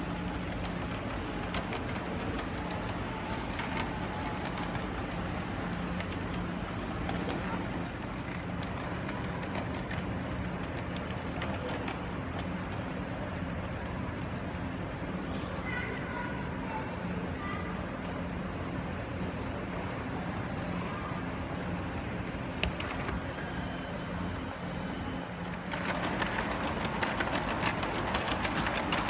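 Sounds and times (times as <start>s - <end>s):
model train motors and wheels rumbling: 0.0s - 29.0s.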